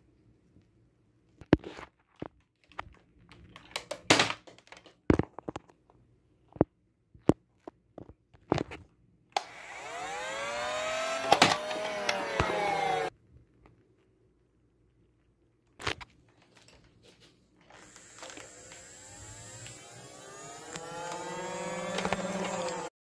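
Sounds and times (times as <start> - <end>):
electric flywheel motors whirring: 9.4 - 13.1, 17.7 - 22.9
toy blasters clicking and clacking: 10.9 - 12.6, 17.8 - 22.9.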